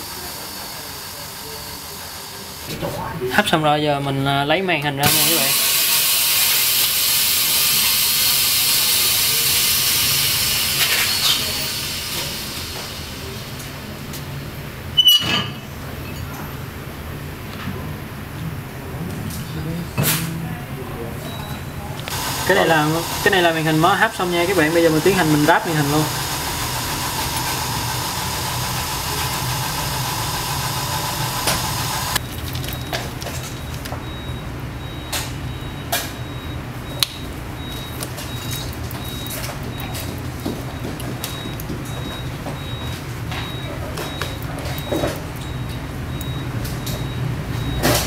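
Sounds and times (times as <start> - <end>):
compressed air venting hiss: 5.1 - 13.6, 22.1 - 32.2
motor or fan whirring: 22.0 - 32.2.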